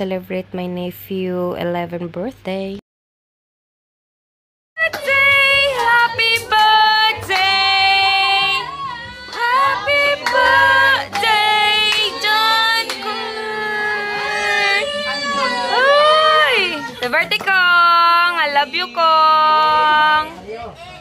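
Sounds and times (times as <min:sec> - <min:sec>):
group of people singing: 0:04.9 - 0:21.0.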